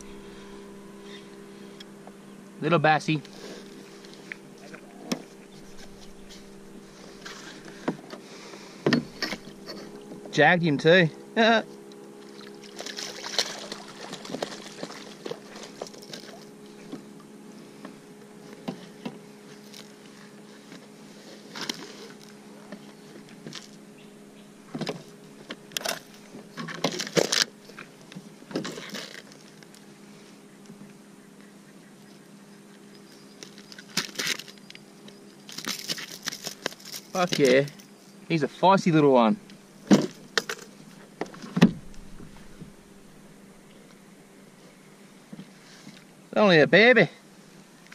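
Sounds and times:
steady low hum: 0.0 - 47.9
fishing gear knocking and rustling: 33.0 - 34.8, 35.4 - 38.0, 39.8 - 42.8.

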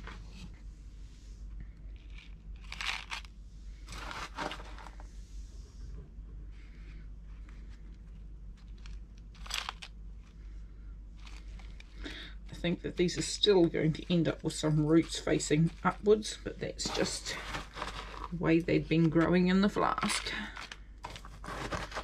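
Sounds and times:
low steady hum: 0.0 - 22.0
potting mix crunching: 1.9 - 5.0, 7.5 - 22.0.

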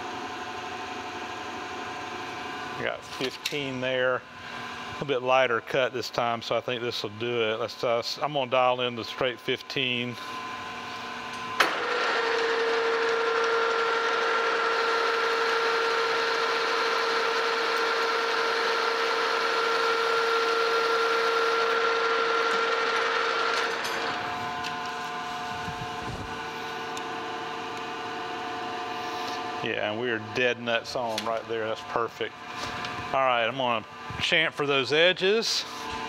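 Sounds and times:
lathe humming: 10.1 - 30.3
lathe cutting metal: 11.6 - 24.7.

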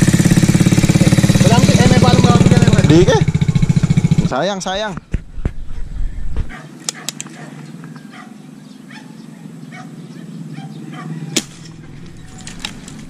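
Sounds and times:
dog barking faintly: 6.5 - 11.3.

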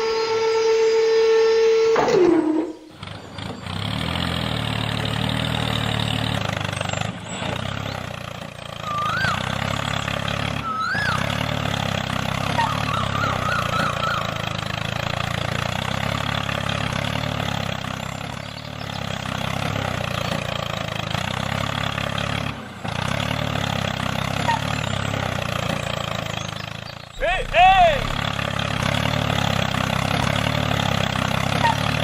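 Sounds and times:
engine idling: 2.6 - 32.0
bird chirps: 8.8 - 11.6, 12.4 - 14.6, 24.4 - 28.4.

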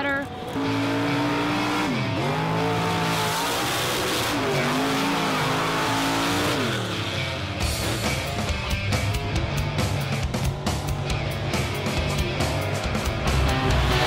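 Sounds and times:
truck engine revving: 0.2 - 14.0
music with a steady beat: 7.5 - 14.0.

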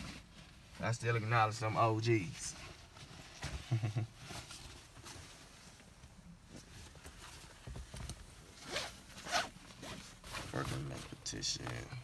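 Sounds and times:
bag rustling: 8.5 - 11.2.

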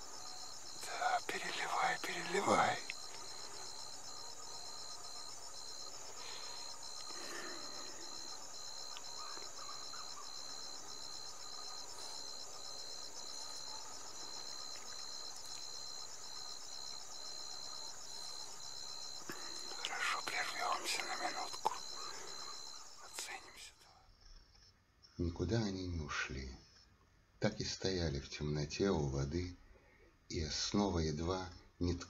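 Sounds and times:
insects chirring: 0.0 - 25.2.

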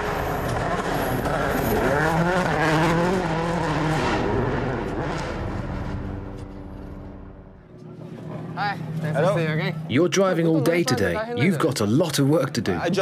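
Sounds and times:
rally car engine revving: 0.0 - 7.5.

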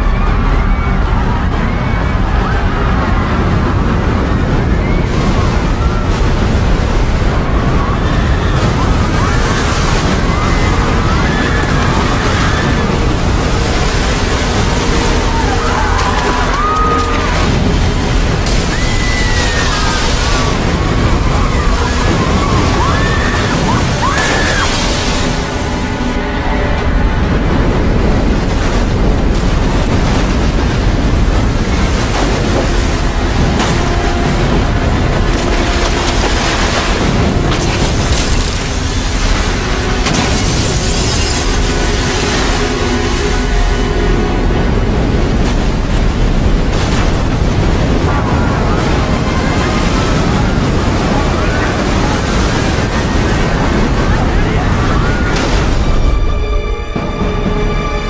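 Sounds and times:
people screaming: 0.0 - 27.3, 47.8 - 56.4
deep rumble: 0.0 - 58.0
rush of water: 0.0 - 58.0.

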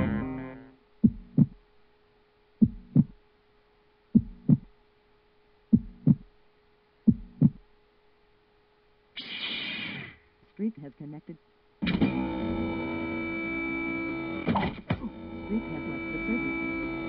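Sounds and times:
slow heartbeat thumps: 0.0 - 1.7, 2.6 - 3.2, 4.1 - 4.8, 5.7 - 6.4, 7.0 - 7.7
faint steady hum: 0.0 - 17.0.

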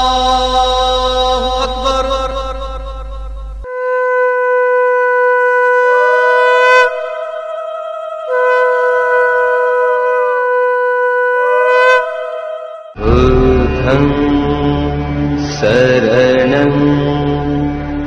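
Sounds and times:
conch shell blown: 3.4 - 13.5
voices chanting: 6.9 - 9.0.

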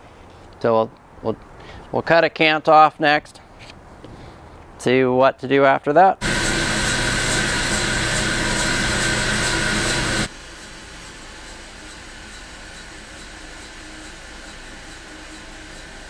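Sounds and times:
bandsaw cutting log: 6.2 - 16.0
machine hum: 6.2 - 16.0.

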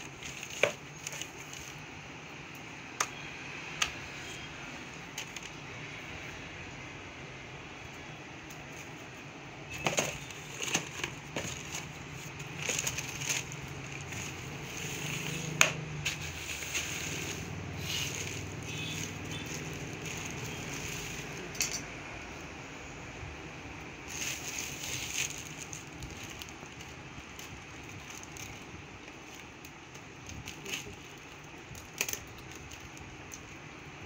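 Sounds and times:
paper and plastic rustling: 0.0 - 1.9, 5.0 - 5.7, 8.6 - 21.5, 24.0 - 33.6.

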